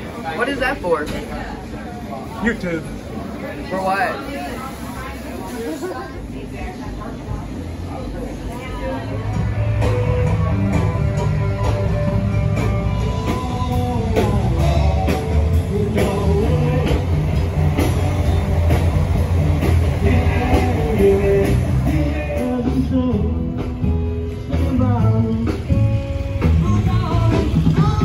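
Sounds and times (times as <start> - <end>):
guitar: 3.0 - 28.0
drums: 7.1 - 28.0
rock music: 9.0 - 28.0
person singing: 12.9 - 17.5, 19.9 - 23.8, 24.5 - 28.0.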